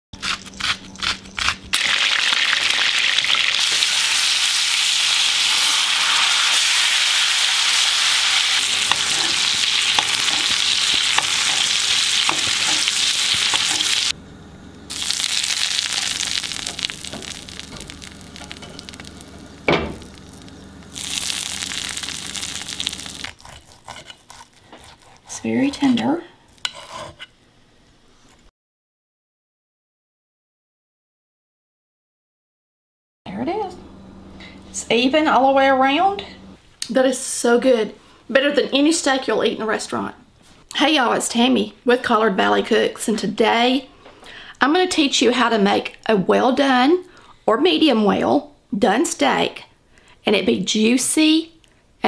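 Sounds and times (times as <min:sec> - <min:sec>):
steak sizzling in oil: 0:01.8 - 0:14.1, 0:14.9 - 0:23.4.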